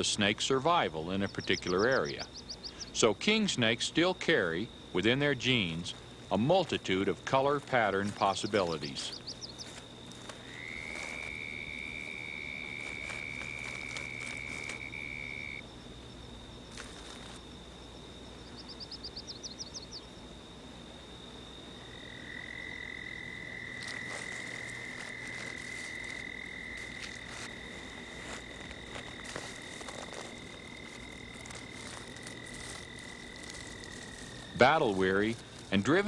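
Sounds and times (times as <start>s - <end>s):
rapid chirps: 0.9s - 3.4s, 4.3s - 15.6s.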